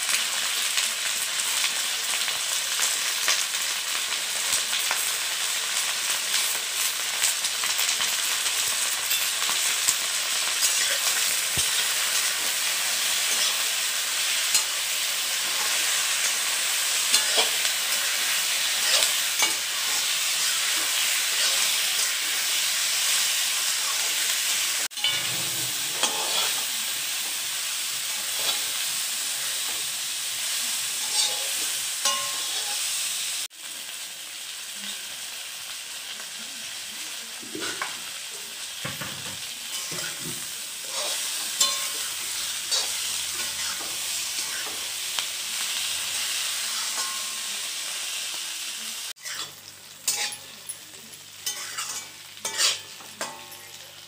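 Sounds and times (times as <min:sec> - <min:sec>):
food sizzling in oil: 0:00.0 - 0:54.0
metal spatula scraping pan: 0:10.5 - 0:23.1, 0:24.9 - 0:26.7, 0:28.1 - 0:29.8, 0:31.0 - 0:32.9, 0:49.2 - 0:50.6, 0:51.4 - 0:53.8.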